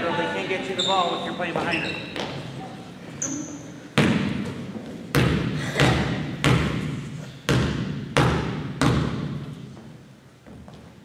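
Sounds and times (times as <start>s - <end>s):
basketball bouncing on gym floor: 1.5s - 2.5s, 4.0s - 11.0s.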